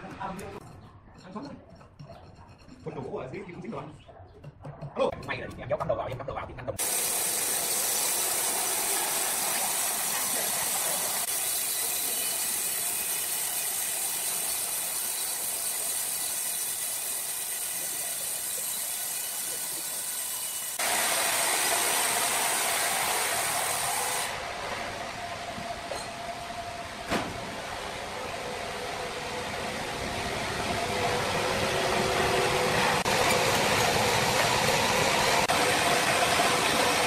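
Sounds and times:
band saw cutting through log: 6.8s - 37.0s
sawmill machine running: 6.8s - 37.0s.

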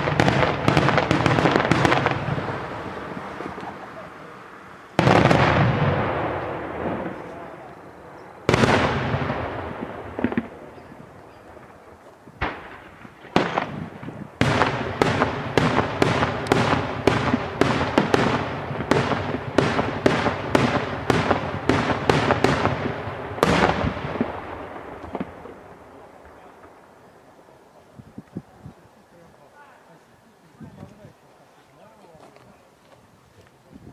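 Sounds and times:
fireworks bangs with echo: 0.0s - 27.0s.

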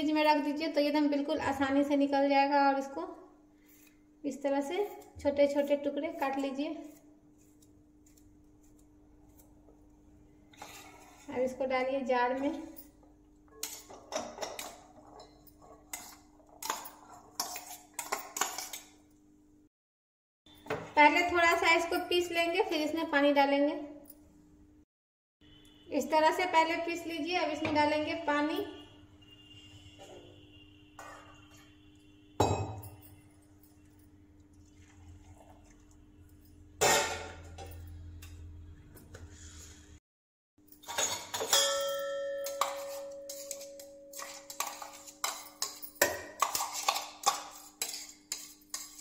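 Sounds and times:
steel bowls clinking: 40.7s - 49.0s.

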